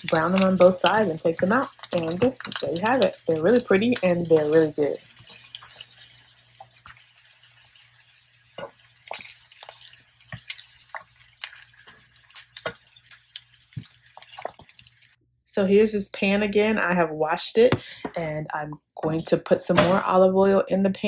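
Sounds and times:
fruit sizzling in oil: 0.0s - 15.2s
oil popping: 0.0s - 15.2s.

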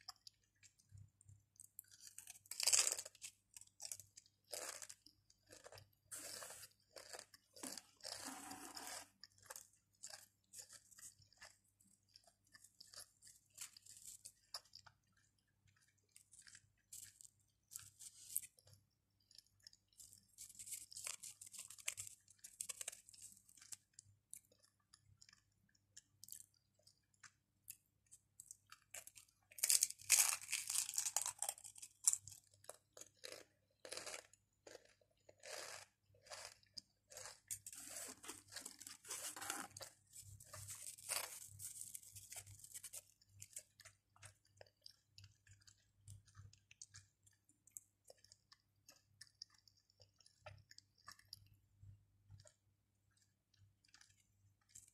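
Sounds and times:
chewing: 0.0s - 54.9s
crisps crunching: 1.8s - 18.8s, 19.4s - 24.6s, 28.7s - 45.0s.

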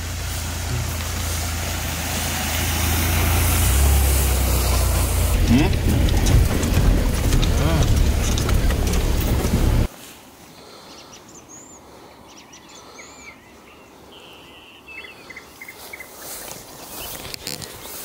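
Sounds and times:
loud deep vehicle noise: 0.0s - 9.9s
small birds singing: 10.6s - 18.0s.

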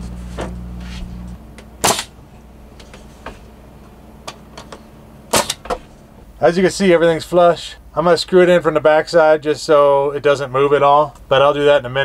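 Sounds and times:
steady low hum: 0.0s - 12.0s
nail gun firing: 1.8s - 2.2s, 5.3s - 5.8s.

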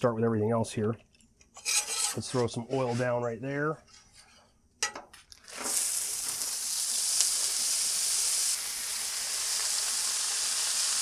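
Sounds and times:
vegetables sizzling on hot griddle: 5.4s - 11.0s.

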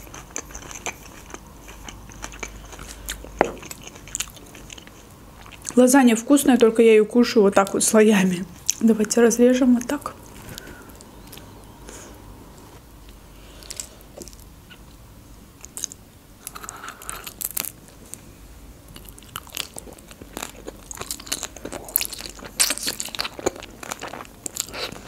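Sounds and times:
chewing with wet mouth clicks: 0.0s - 5.8s, 18.9s - 25.0s.

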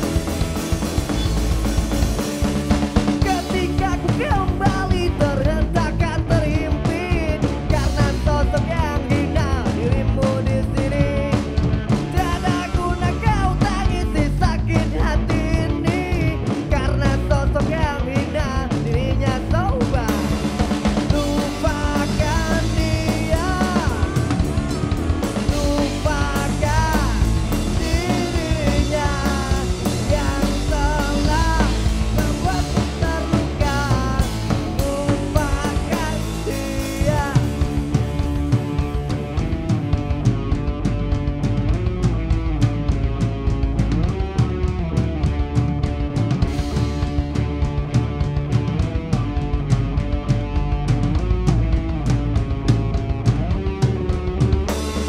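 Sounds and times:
lead vocal singing: 0.0s - 39.6s
bass guitar: 0.0s - 55.0s
drum kit: 0.0s - 55.0s
electric guitar: 0.0s - 55.0s.

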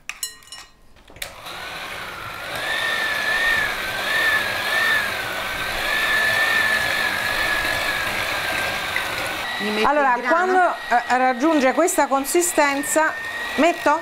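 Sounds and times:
electric hand mixer whine: 1.2s - 14.0s.

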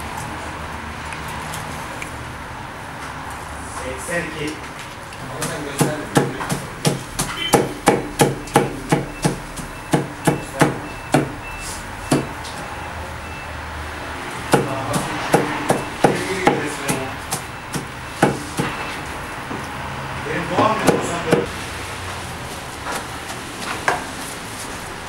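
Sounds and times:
meat cleaver chopping on wooden board: 5.3s - 11.4s, 14.5s - 18.7s, 20.6s - 21.5s.

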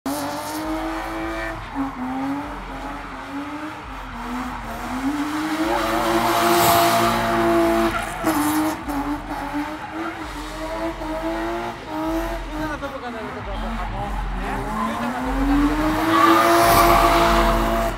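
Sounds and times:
car engine revving high: 0.1s - 17.9s
tyres squealing: 12.2s - 17.9s.

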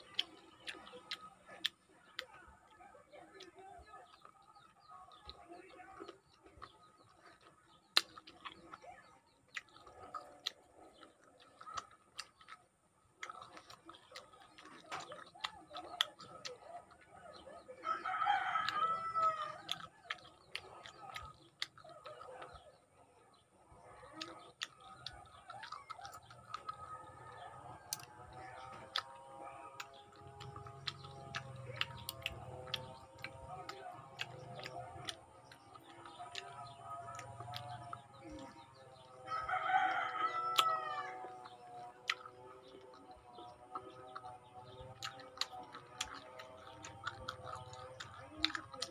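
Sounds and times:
wet chewing and sucking: 0.0s - 48.9s
rooster crowing: 17.8s - 19.7s, 39.2s - 41.5s.

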